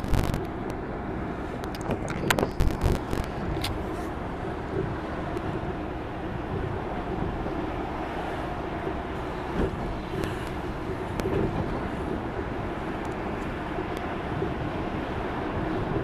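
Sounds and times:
vehicle engine and road rumble: 0:00.0 - 0:16.0.

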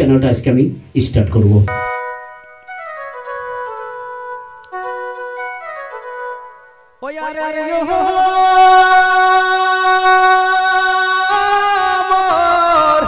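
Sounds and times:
man singing a long held note: 0:07.0 - 0:13.0.

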